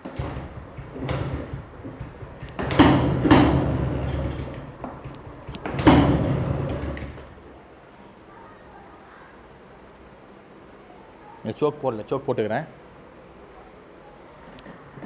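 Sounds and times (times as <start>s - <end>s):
engine turning over: 0.0s - 7.5s.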